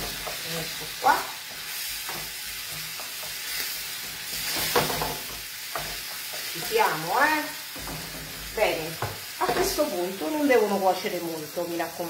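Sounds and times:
tomatoes sizzling in a frying pan: 0.0s - 12.0s
utensil knocking and scraping pan: 1.5s - 6.8s, 7.7s - 9.9s.

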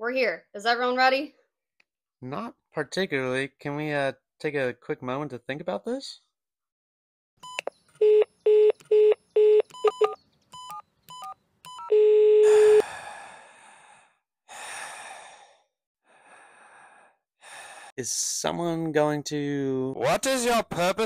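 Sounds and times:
keypad beeps: 7.4s - 12.8s.

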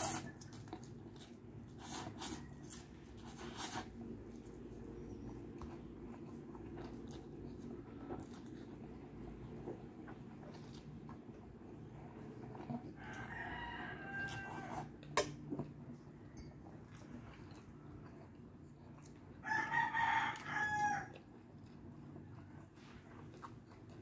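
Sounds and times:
rooster crowing: 13.0s - 14.9s, 19.4s - 21.2s.

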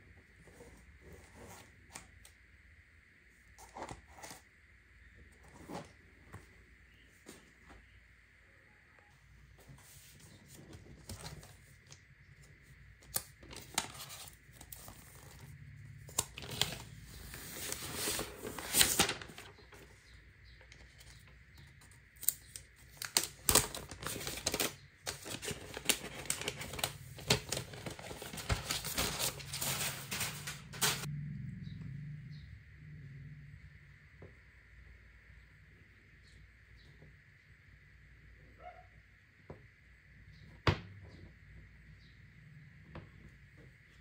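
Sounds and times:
plastic wrap crinkling: 22.2s - 31.1s.

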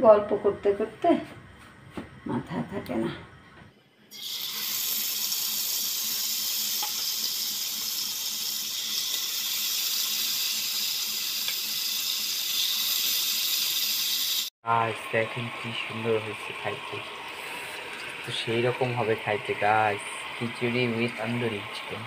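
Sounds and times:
chicken sizzling in hot oil: 4.1s - 14.5s, 15.2s - 22.0s.

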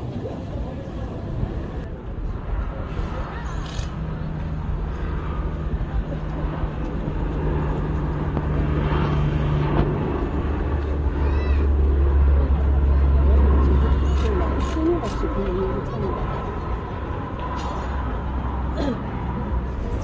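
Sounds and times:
propeller plane drone: 0.0s - 20.0s.

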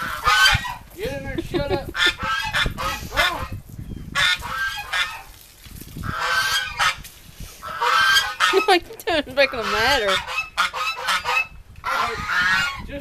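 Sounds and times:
geese honking: 0.0s - 0.8s, 1.9s - 3.4s, 4.2s - 5.3s, 6.0s - 7.0s, 7.6s - 12.9s.

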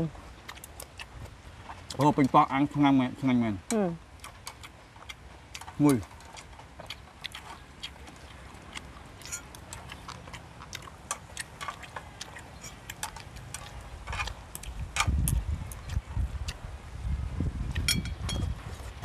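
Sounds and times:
chewing smacks: 0.4s - 2.3s, 4.2s - 16.7s.

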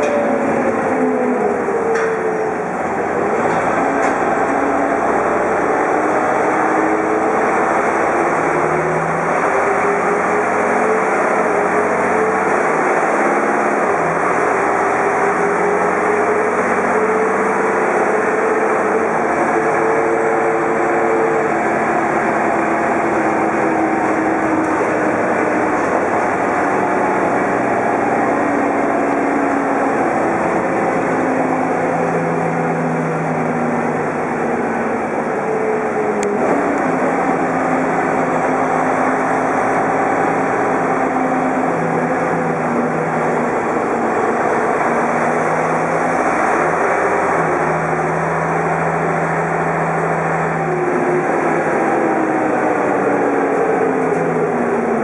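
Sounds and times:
bus engine running: 0.0s - 55.0s
road and cabin noise: 0.0s - 55.0s.

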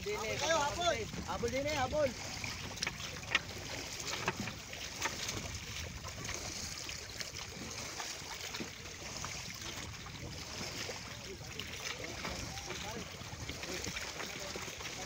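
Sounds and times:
sea water washing: 0.0s - 15.0s
water slapping boat hull: 0.0s - 15.0s.

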